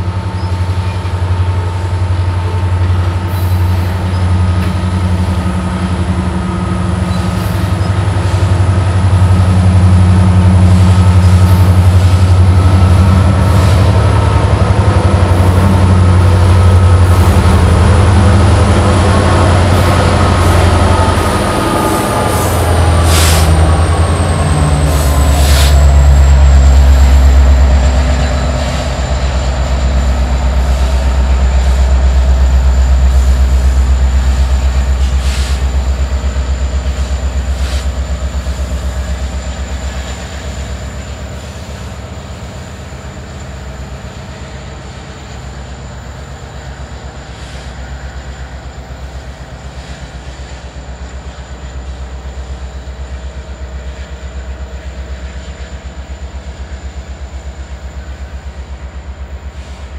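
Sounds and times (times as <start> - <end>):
diesel locomotive rumbling: 0.0 - 59.9.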